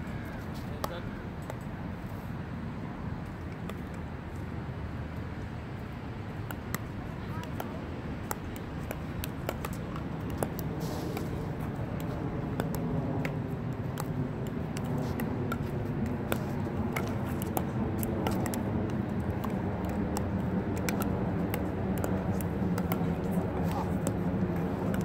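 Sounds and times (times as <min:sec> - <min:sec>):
ball bouncing on asphalt: 0:00.6 - 0:01.7, 0:06.4 - 0:25.0
steady low rumble: 0:04.1 - 0:25.0
paddles hitting plastic ball: 0:06.4 - 0:25.0.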